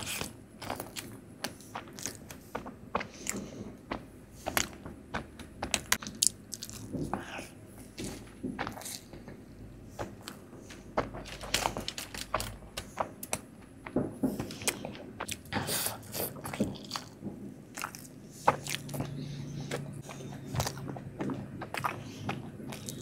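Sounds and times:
chewing with wet mouth clicks: 17.8 - 23.0.

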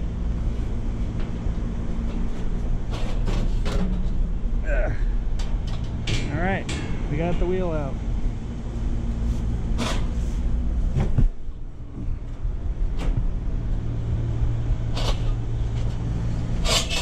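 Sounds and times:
steady low hum: 0.0 - 17.0
metal knocks and clanks: 5.4 - 7.8.

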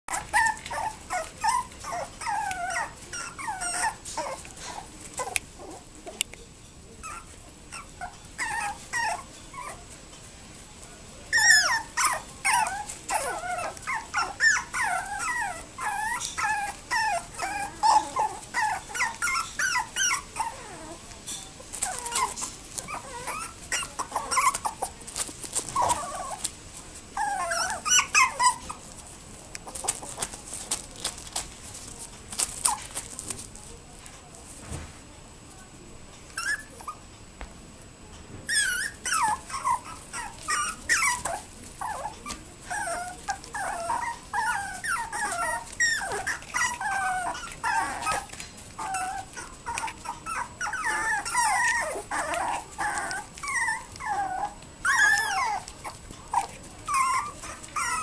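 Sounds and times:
puppies whimpering and yipping: 0.1 - 5.9, 7.0 - 10.0, 11.3 - 21.0, 21.7 - 26.5, 27.2 - 29.0, 36.4 - 37.0, 38.5 - 58.0.

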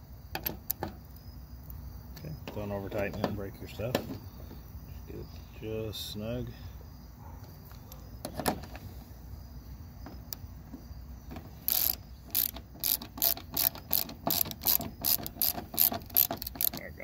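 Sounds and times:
ratchet wrench clicking: 11.6 - 17.0.

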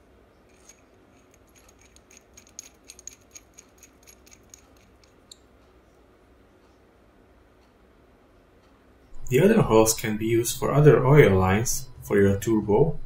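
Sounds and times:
metal fitting clicking and ticking: 0.5 - 5.5.

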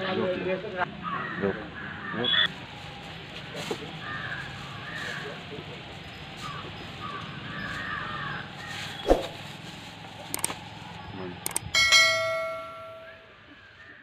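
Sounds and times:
clicks: 10.3 - 10.6, 11.5 - 11.7
bright bell-like chime: 11.8 - 13.3.

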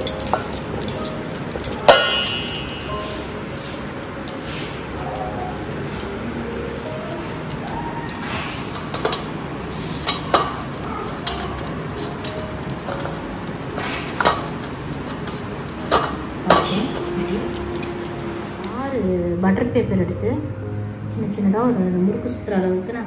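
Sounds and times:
metal knocks and clinks: 0.0 - 3.3, 4.0 - 18.8
steady background hiss: 0.0 - 23.0.

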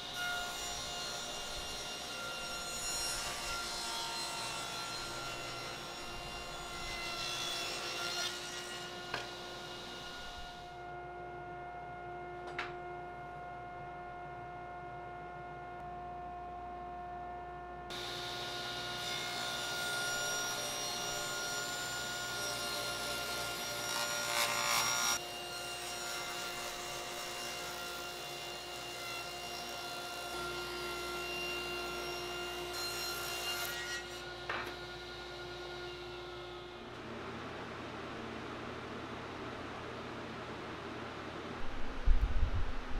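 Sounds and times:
saw blade cutting board: 0.2 - 10.6.

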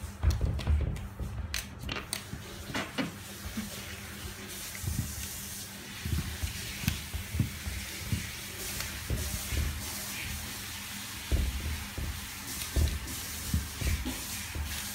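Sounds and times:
steady hiss: 2.1 - 14.9
dog pawing at glass panel: 11.2 - 14.9.

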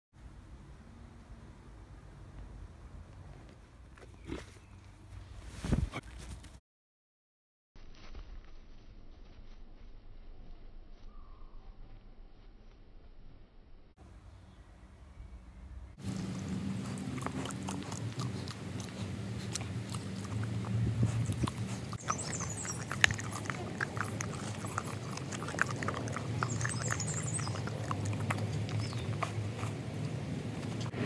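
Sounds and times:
dog licking and chewing: 16.0 - 30.9.

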